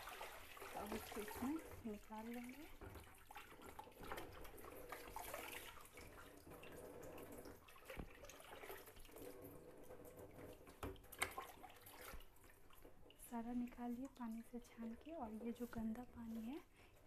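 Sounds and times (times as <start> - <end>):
water splashing and dripping: 0.0 - 16.5.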